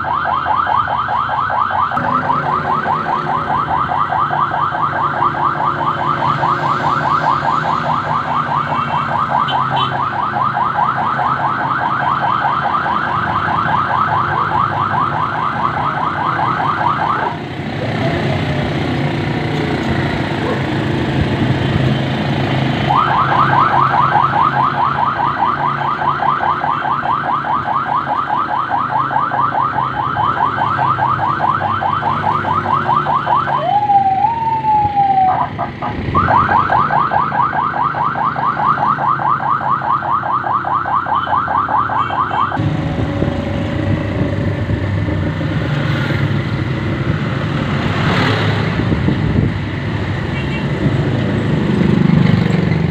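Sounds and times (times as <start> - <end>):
electronic siren yelping: 0.0 - 18.5, 22.7 - 46.7
motor engine humming: 1.9 - 6.0, 42.3 - 47.7.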